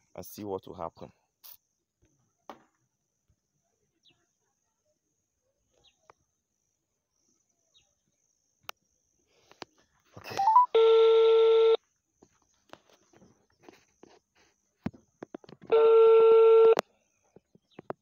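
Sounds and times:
loud steady call tone: 0:10.2 - 0:11.8, 0:15.6 - 0:16.8.

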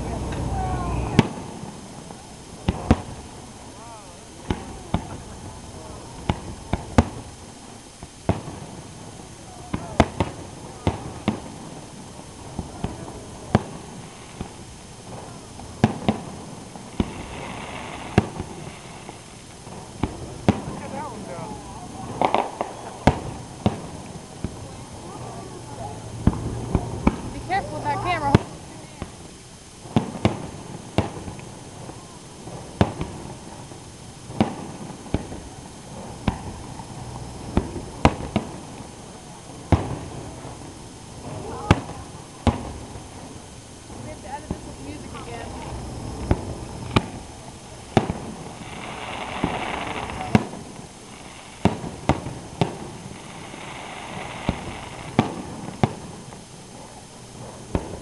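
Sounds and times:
firework hiss: 0:00.0 - 0:58.0
fireworks bursting with sharp bangs: 0:00.0 - 0:58.0.

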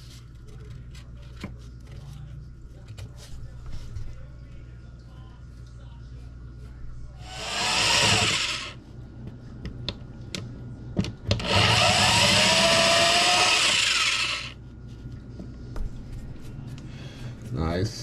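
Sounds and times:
electric drill cutting wood: 0:07.2 - 0:08.8, 0:11.4 - 0:14.6.

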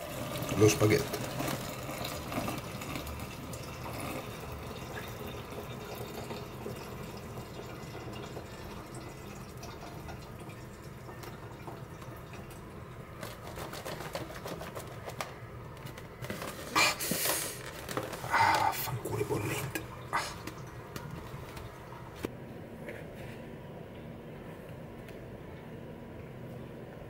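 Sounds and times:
water trickling into a sink: 0:00.0 - 0:15.2, 0:16.4 - 0:22.3.

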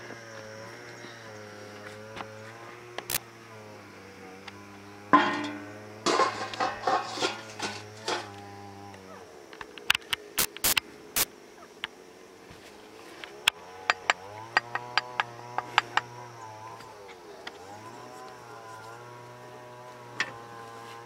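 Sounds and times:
tool striking wooden plank: 0:13.8 - 0:16.1.

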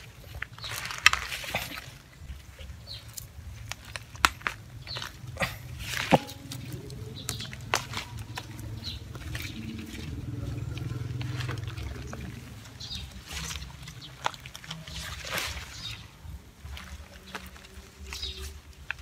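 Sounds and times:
roots and earth crackling: 0:00.0 - 0:19.0
low rumble: 0:05.1 - 0:14.3.

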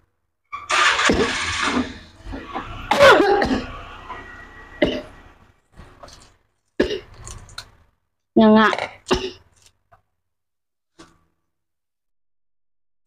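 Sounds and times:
person coughing: 0:04.8 - 0:05.2, 0:06.8 - 0:07.2, 0:09.1 - 0:09.5.

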